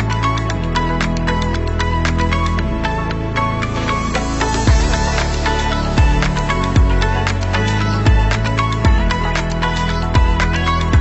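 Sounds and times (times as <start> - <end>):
background music with steady beat: 0.0 - 11.0
deep bass hits sliding down: 1.9 - 9.3.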